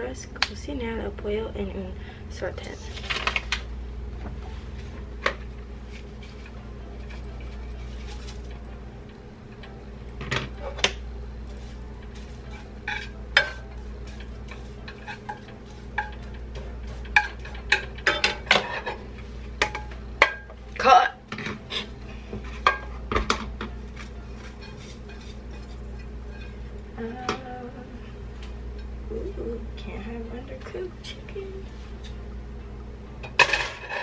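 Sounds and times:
low hum: 0.0s - 33.8s
spatula scraping frying pan: 11.5s - 19.8s, 24.4s - 26.7s.

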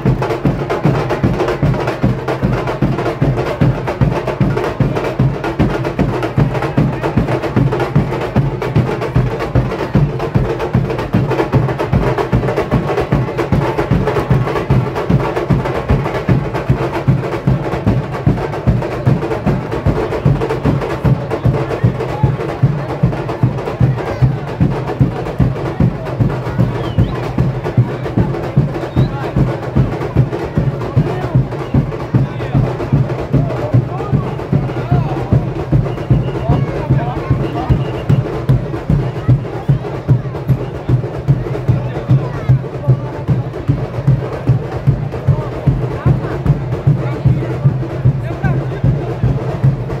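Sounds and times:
bass drums: 0.0s - 50.0s
snare drums and percussion: 0.0s - 50.0s.

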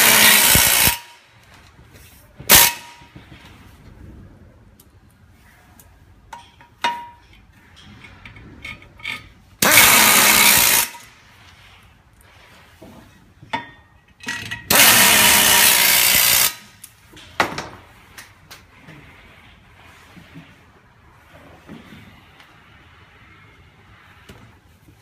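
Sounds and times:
power screwdriver running: 9.6s - 10.9s, 14.7s - 16.6s.

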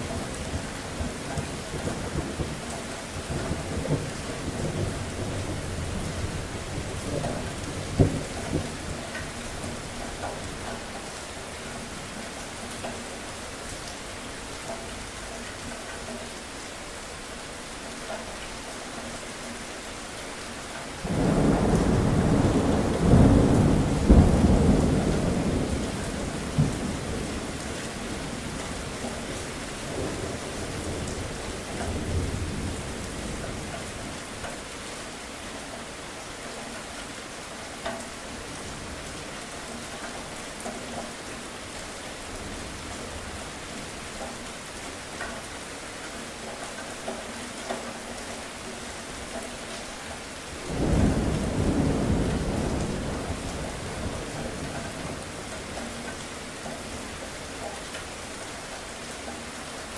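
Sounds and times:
steady rain: 0.0s - 59.9s
thunder rumbling: 21.0s - 29.2s, 50.6s - 55.7s.

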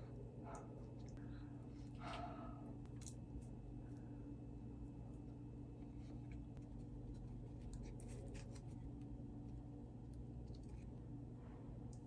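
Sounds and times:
steady low hum: 0.0s - 12.0s
food picked and peeled by hand: 2.8s - 11.2s.

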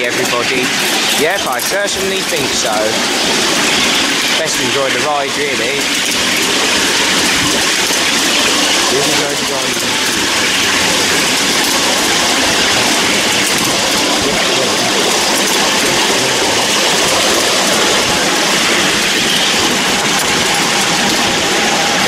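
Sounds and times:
miniature train wheels rumbling on rails: 0.0s - 22.0s.

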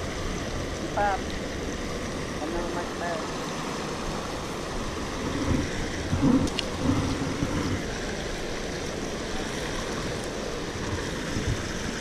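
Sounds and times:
water rushing over weir: 0.0s - 12.0s
low bumps and rumbles: 4.8s - 8.1s.

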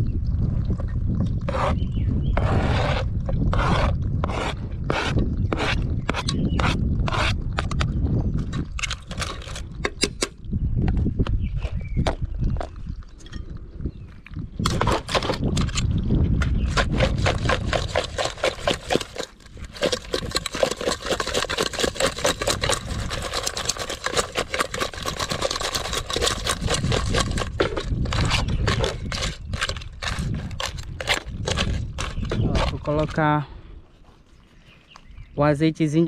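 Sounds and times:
crab shells clattering in a metal pot: 17.3s - 32.8s.

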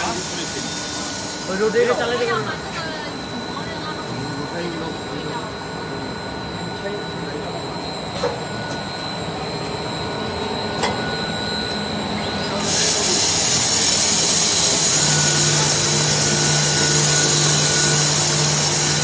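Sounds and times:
machinery hum: 0.0s - 19.0s.

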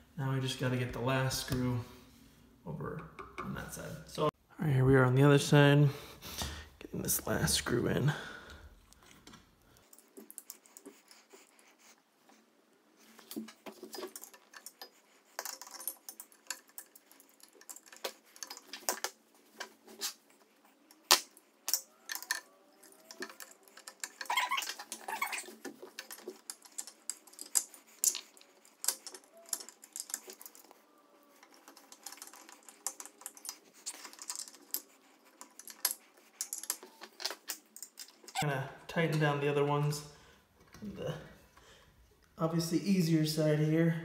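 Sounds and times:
screwdriver clicking and scraping on metal: 13.0s - 38.5s.

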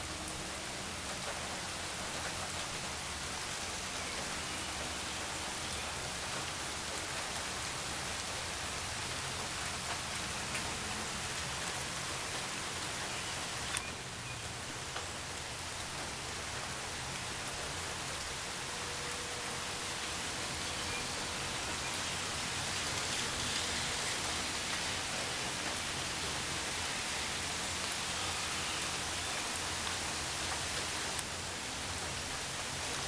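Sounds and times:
steady rain hiss: 0.0s - 33.0s.

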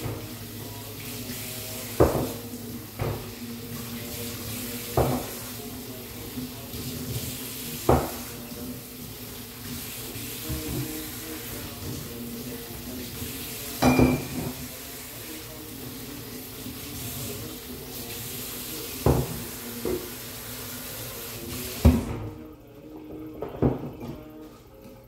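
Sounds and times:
tap running into sink: 1.0s - 5.5s, 6.7s - 8.6s, 9.6s - 14.8s, 16.9s - 20.4s, 21.2s - 22.4s
dishes knocking against sink: 2.0s - 2.4s, 5.0s - 5.4s, 7.9s - 8.3s, 13.8s - 14.6s, 19.0s - 20.0s.

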